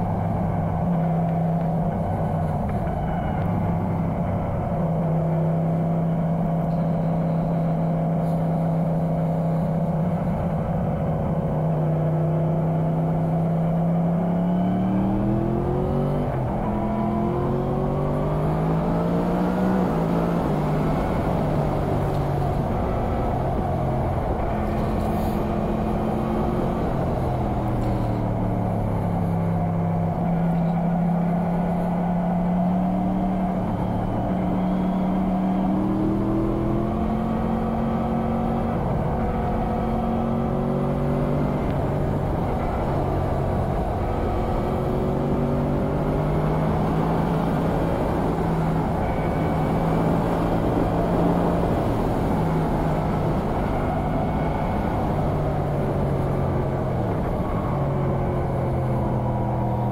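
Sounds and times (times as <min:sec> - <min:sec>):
motorcycle engine revving: 0:11.3 - 0:59.9.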